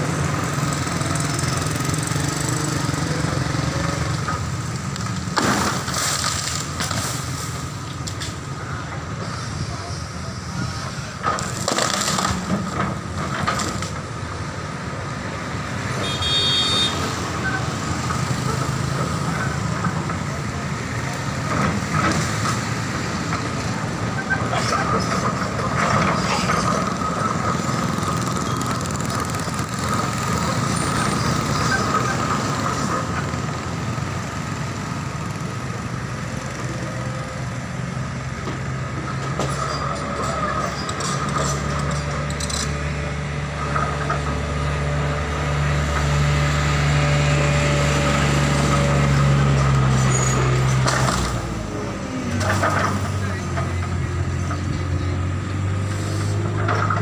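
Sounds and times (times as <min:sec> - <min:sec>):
excavator diesel engine running: 0:00.0 - 0:57.0
passing road traffic: 0:00.0 - 0:57.0.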